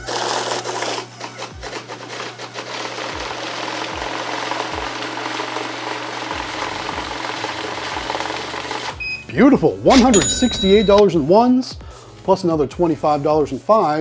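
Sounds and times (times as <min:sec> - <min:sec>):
paper bills riffling: 0:00.0 - 0:05.7, 0:06.5 - 0:09.0.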